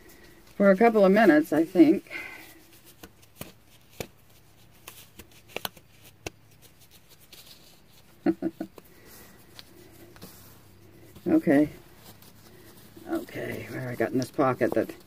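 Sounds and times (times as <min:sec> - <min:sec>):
fabric rustling and clicks: 0:02.8 - 0:15.0.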